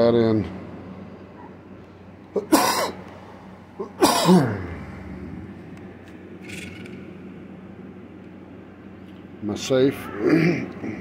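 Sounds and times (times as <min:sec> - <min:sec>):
man sneezing: 0:02.4 - 0:03.0, 0:03.8 - 0:04.8.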